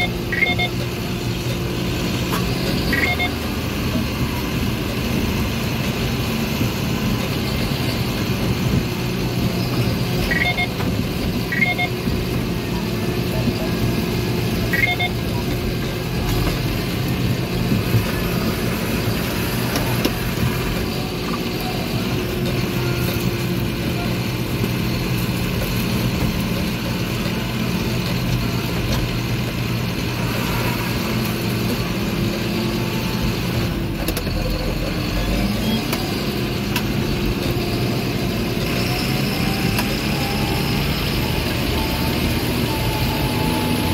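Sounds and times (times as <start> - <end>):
faint short beeps: 0.0 - 0.9, 2.9 - 3.4, 10.2 - 10.8, 11.5 - 12.0, 14.7 - 15.4
tractor diesel engine running: 0.0 - 43.9.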